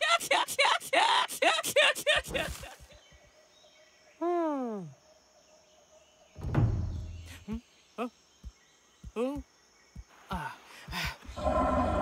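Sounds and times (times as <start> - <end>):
heavy low thud: 6.4 - 7.3.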